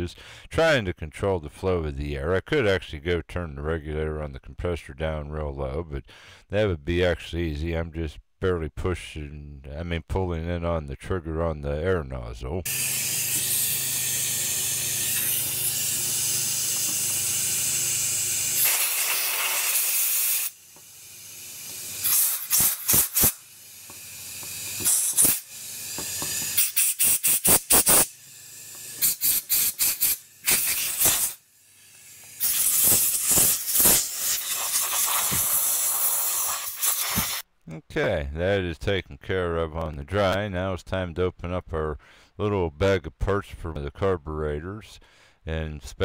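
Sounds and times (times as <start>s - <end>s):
compressed air blow gun hissing: 12.7s - 37.5s
short quick air puffs: 22.0s - 23.4s, 24.8s - 25.5s, 26.5s - 28.1s, 29.0s - 31.4s, 32.3s - 37.5s.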